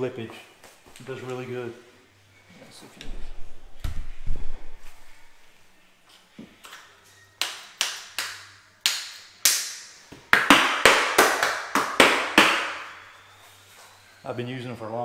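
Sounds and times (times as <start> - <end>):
hand slapping floor tiles: 6.6 - 13.0.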